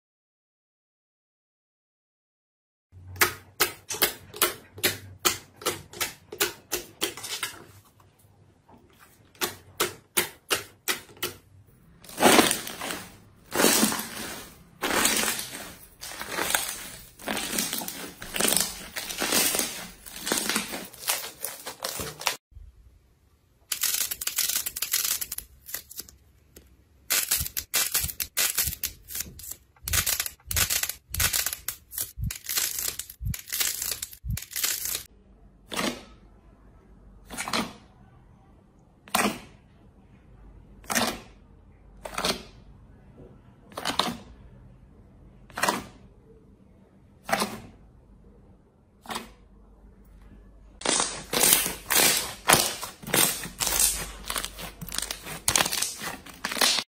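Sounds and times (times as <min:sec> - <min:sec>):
slime crackling and squelching: 0:12.0 - 0:22.4, 0:50.8 - 0:56.9.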